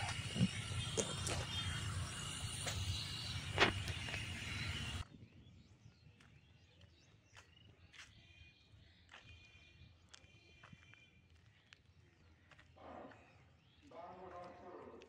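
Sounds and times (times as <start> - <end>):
outdoor rumble and hiss: 0.0 - 5.0.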